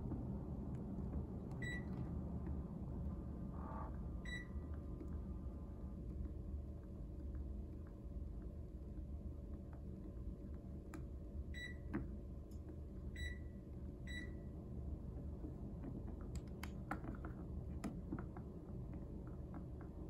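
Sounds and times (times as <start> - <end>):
low steady hum: 0.0 - 20.0
air conditioner electronic beeps: 1.4 - 5.8, 11.4 - 12.1, 12.9 - 14.7.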